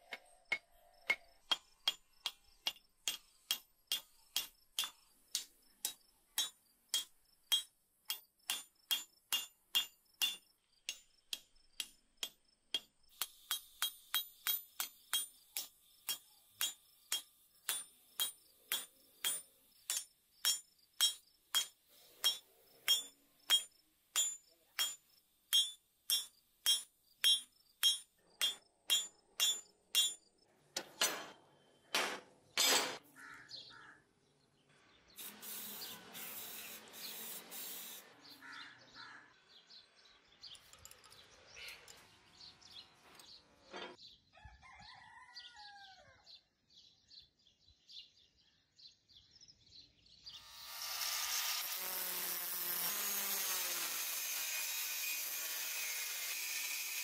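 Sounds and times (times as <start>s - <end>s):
hammer striking steel on anvil: 0.0s - 33.0s
angle grinder grinding steel: 50.3s - 57.0s.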